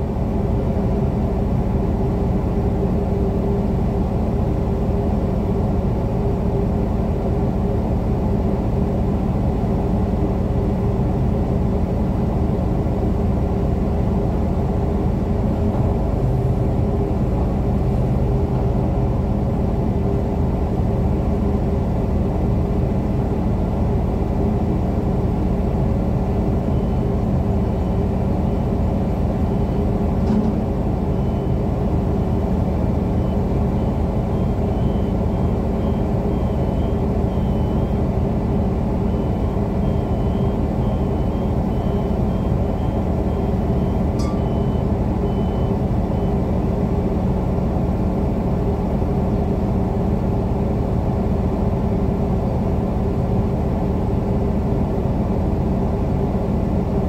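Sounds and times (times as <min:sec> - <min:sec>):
crane engine droning: 0:00.0 - 0:57.0.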